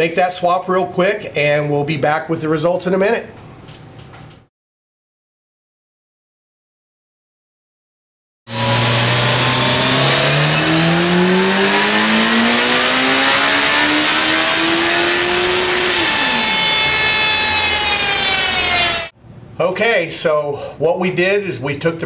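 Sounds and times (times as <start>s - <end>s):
high whine: 8.5s - 19.1s
motorcycle engine revving: 8.5s - 19.1s.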